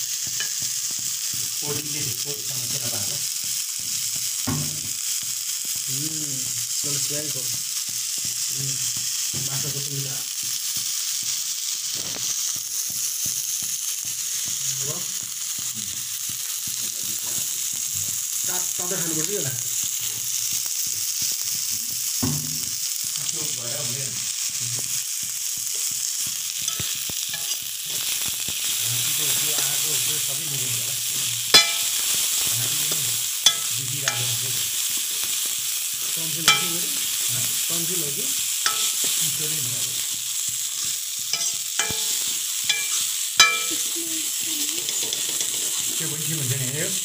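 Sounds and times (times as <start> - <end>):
onions sizzling in hot oil: 0.0 - 47.0
ladle clinking against pan: 31.6 - 32.0, 33.5 - 34.4, 36.5 - 36.8, 38.7 - 39.2, 41.4 - 43.8.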